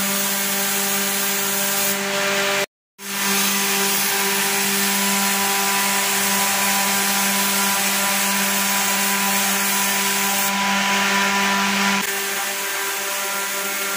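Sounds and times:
paint spray gun hissing: 0:00.0 - 0:01.9.

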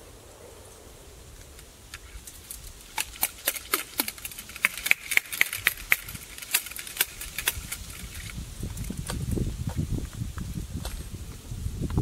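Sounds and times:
ramrod clicking in gun barrel: 0:01.9 - 0:08.9.

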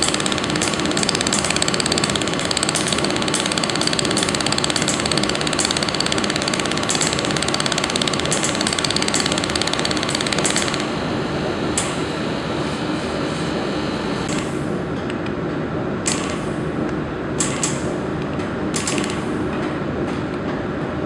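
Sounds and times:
laser welder crackling bursts: 0:00.0 - 0:11.0
steady background hum: 0:00.0 - 0:21.0.

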